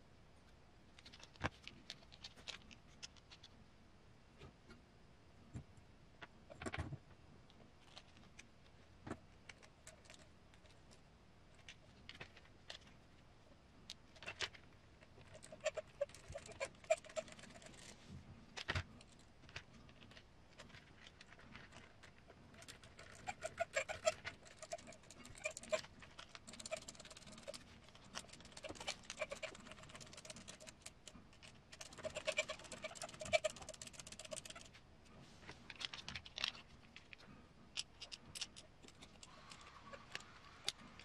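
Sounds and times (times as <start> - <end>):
plastic parts clicking and rattling: 1.0 - 3.5, 13.9 - 17.9, 18.5 - 34.8, 35.7 - 41.0
screws squeaky creak: 15.3 - 17.8, 22.6 - 25.9, 26.5 - 30.8, 31.8 - 34.7.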